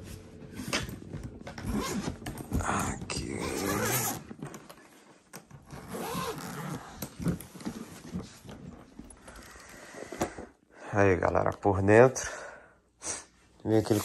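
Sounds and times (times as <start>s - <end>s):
suitcase shell rustling and scraping: 0.0s - 10.4s.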